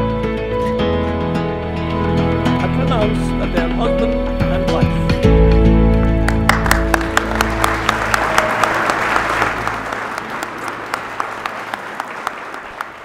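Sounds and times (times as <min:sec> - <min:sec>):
background music: 0:00.0 - 0:13.0
congregation applauding: 0:05.8 - 0:13.0.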